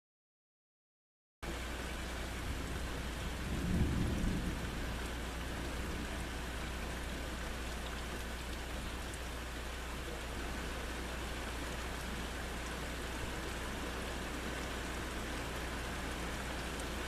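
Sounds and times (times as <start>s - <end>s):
steady rain: 1.4s - 17.0s
low thunder rumble: 2.4s - 7.0s.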